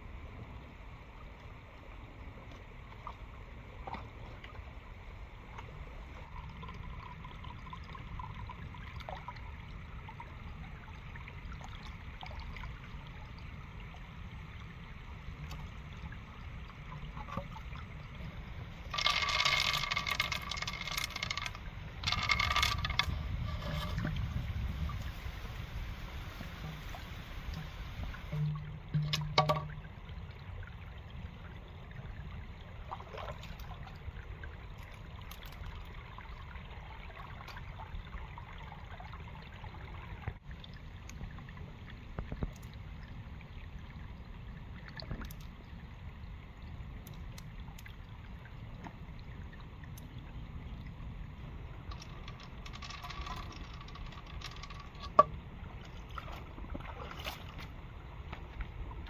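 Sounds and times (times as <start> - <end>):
stream trickling over rocks: 0.3 - 59.0
splashes from wading: 55.8 - 57.8.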